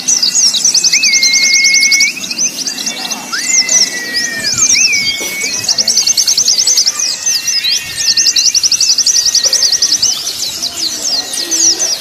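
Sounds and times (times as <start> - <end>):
birds singing fast chirps: 0.0 - 12.0
thin whistled notes: 0.2 - 6.2.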